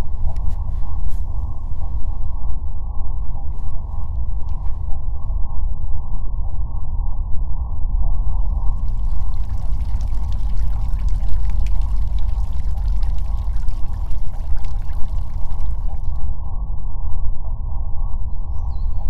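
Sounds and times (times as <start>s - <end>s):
muffled rushing water: 8.3s - 16.4s
fine crackle: 8.4s - 16.4s.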